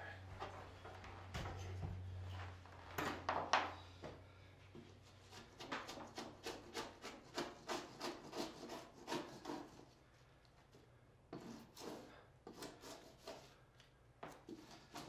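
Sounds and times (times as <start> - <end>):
scraper rasping on wallcovering: 5.1 - 10.0, 11.4 - 13.6, 14.5 - 15.0.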